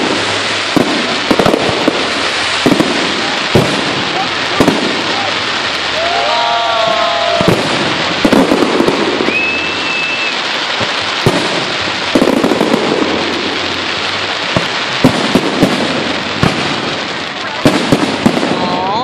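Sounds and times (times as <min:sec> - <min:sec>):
firework crackle: 0:00.0 - 0:19.0
firework shells bursting: 0:00.0 - 0:19.0
high firework whistle: 0:03.7 - 0:13.0.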